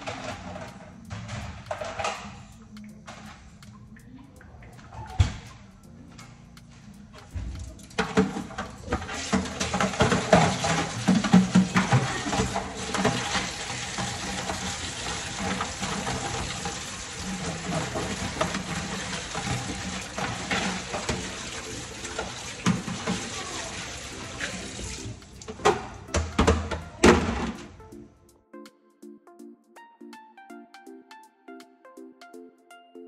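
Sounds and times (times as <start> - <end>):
tap water splashing into sink: 7.2 - 27.8.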